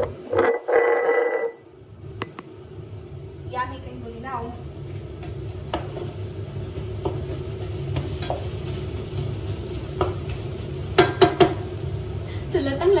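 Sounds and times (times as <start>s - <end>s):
food sizzling in a pan: 3.3s - 13.0s
wooden spatula knocking pan: 10.0s - 10.2s, 11.0s - 11.7s.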